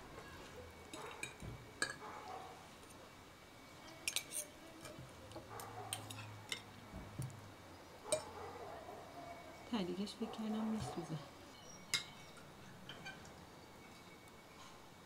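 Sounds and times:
utensils clinking on cookware: 0:04.0 - 0:05.0, 0:05.9 - 0:06.7, 0:11.9 - 0:13.3.

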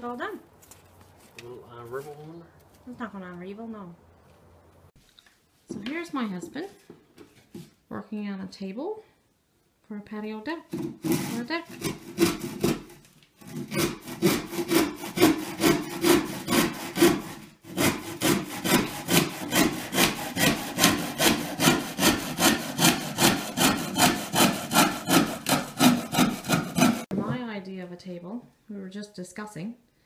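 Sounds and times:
handsaw cutting wood: 0:10.8 - 0:27.1.

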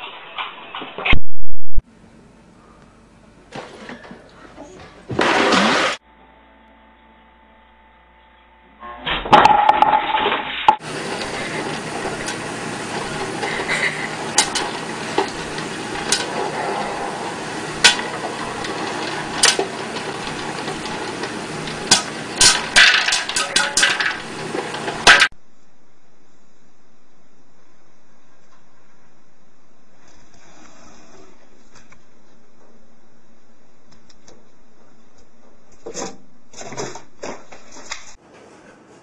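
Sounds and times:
loud clatter: 0:05.1 - 0:06.0, 0:09.3 - 0:25.3
popcorn popper running: 0:05.1 - 0:06.0, 0:09.3 - 0:25.4
popcorn kernels popping: 0:10.8 - 0:25.4.

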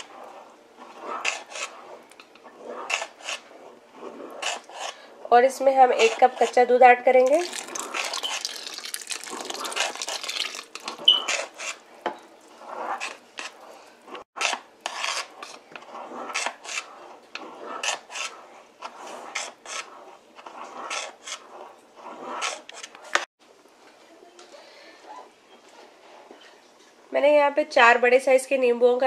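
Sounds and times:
milk pouring into a pot: 0:07.2 - 0:14.2
metal spoon scraping a pot: 0:07.2 - 0:23.0.

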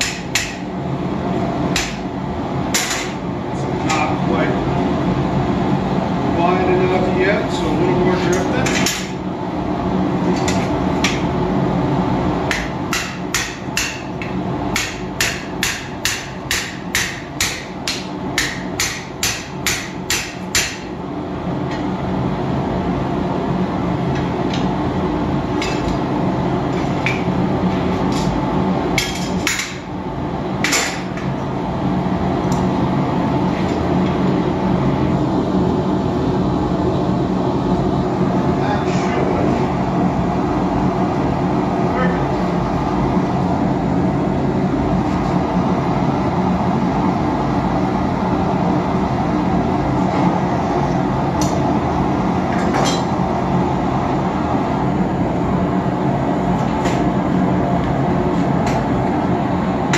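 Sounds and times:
hammer striking steel on anvil: 0:00.0 - 0:00.7, 0:01.7 - 0:02.1, 0:12.5 - 0:20.9
gas forge rumble: 0:00.0 - 0:59.9.

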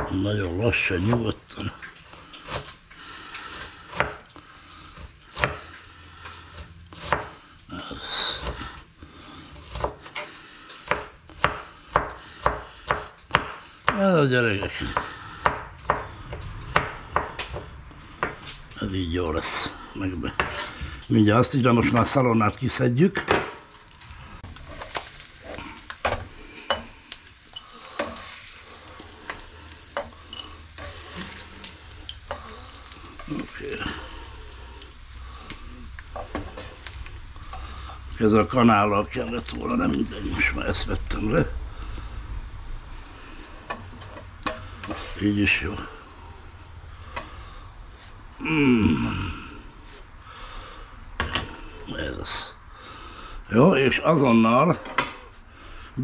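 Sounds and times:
knife chopping on cutting board: 0:07.0 - 0:07.3, 0:10.9 - 0:14.0
knife scraping board: 0:20.4 - 0:20.9
bacon sizzling in a pan: 0:23.6 - 0:50.2.

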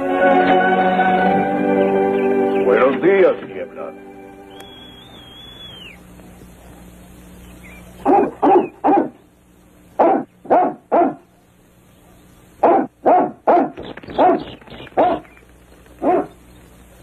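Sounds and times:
dog barking deep woofs: 0:08.0 - 0:09.2, 0:10.0 - 0:11.3, 0:12.0 - 0:15.3, 0:16.0 - 0:16.4.

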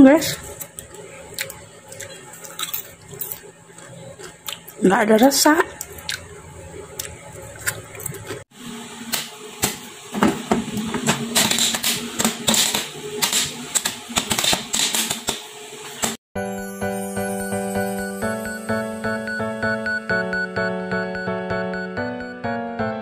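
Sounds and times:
popcorn popping: 0:09.0 - 0:16.2.

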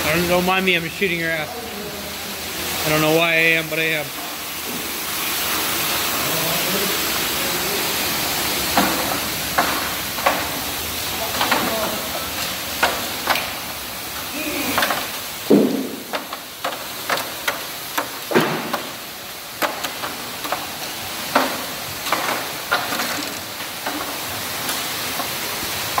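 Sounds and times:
water spray hiss: 0:00.0 - 0:26.0
heavy knocks: 0:14.8 - 0:19.0.

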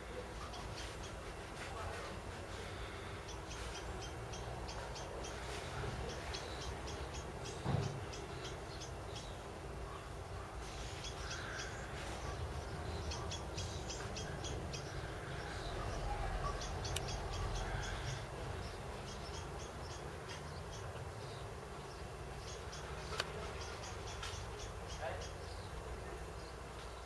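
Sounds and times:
small birds chirping: 0:00.0 - 0:27.0
brief thump: 0:07.6 - 0:08.0.

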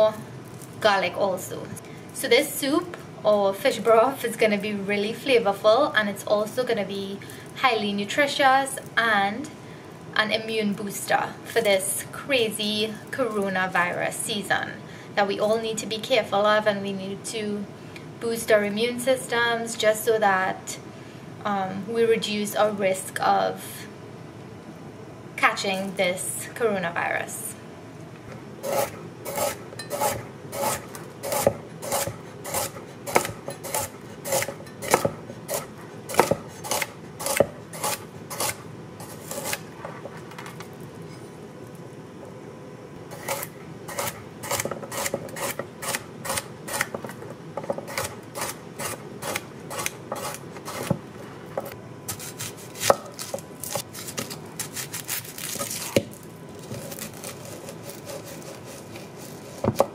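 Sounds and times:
knife chopping on wooden board: 0:28.7 - 0:38.6, 0:43.2 - 0:51.0, 0:52.1 - 0:54.9, 0:59.6 - 0:59.9.

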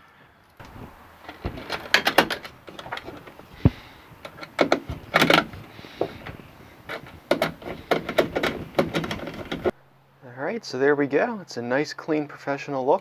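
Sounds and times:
metal conduit clattering: 0:00.6 - 0:09.7.

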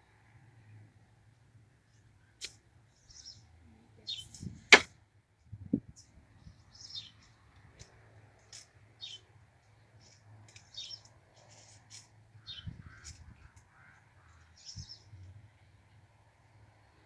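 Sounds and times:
small birds chirping: 0:01.9 - 0:04.6, 0:05.9 - 0:15.3
garden hoe striking ground: 0:04.7 - 0:04.9.

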